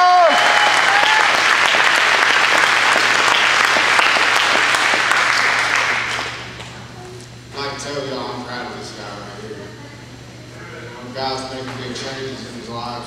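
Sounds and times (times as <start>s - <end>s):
audience clapping: 0.0s - 6.8s.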